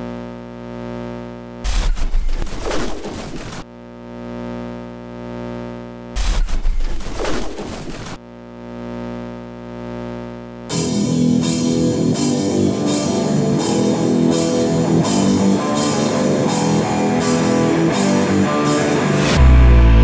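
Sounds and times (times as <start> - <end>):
rock music with drums and guitar: 10.7 - 20.0.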